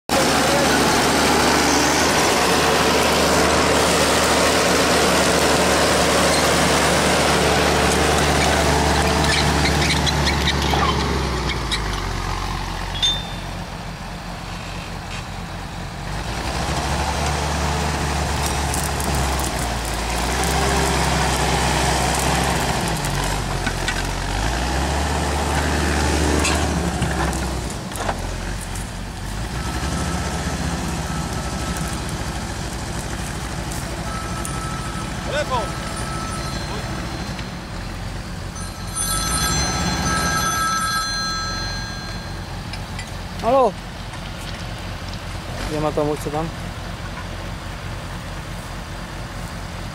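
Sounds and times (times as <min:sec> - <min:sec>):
diesel engine revving: 0:00.1 - 0:49.9
metallic clank: 0:12.9 - 0:13.7.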